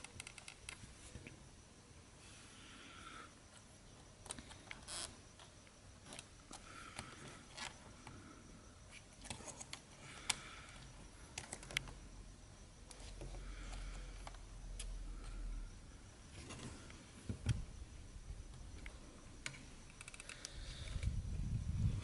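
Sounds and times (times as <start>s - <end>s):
fingers and tool clicking on plastic: 0.0s - 0.8s, 19.4s - 21.1s.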